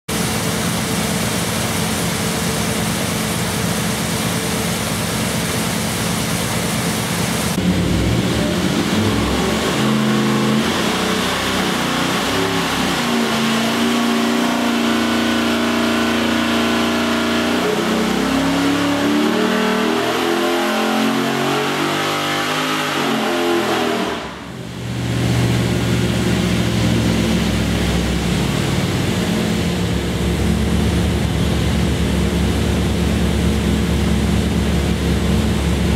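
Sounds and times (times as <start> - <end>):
engine revving under load: 7.5 - 35.9.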